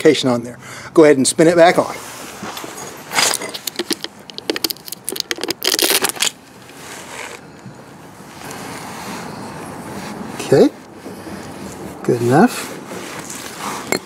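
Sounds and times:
plastic and metal clicking: 3.6 - 6.1.

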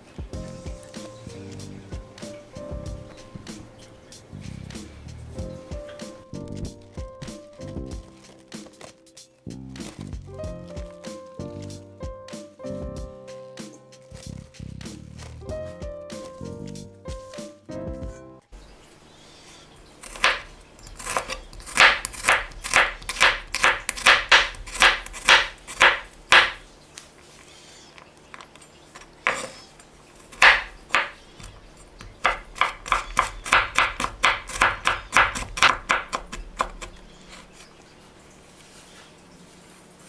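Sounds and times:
knife chopping on cutting board: 7.0 - 9.0, 20.0 - 26.7, 29.0 - 37.6.

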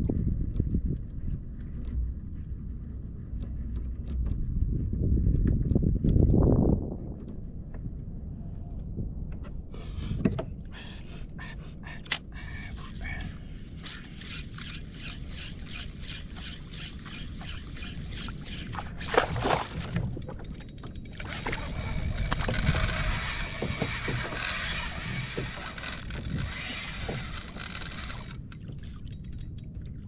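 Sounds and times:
scraping and rustling on kayak: 0.1 - 7.6, 13.6 - 29.1
fishing reel ticking: 13.7 - 18.7, 20.2 - 29.7.

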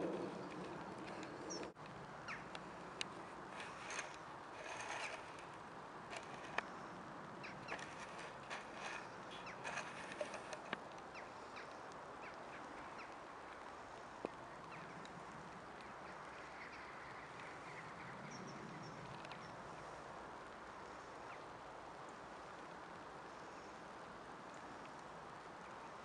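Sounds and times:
small birds chirping: 0.0 - 13.3, 14.2 - 19.8
faint outdoor hiss: 0.0 - 26.0.

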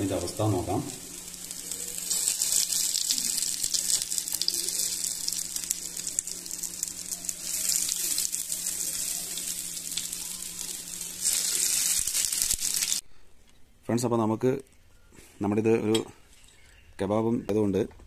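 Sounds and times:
kebabs sizzling in oil: 0.0 - 13.0.

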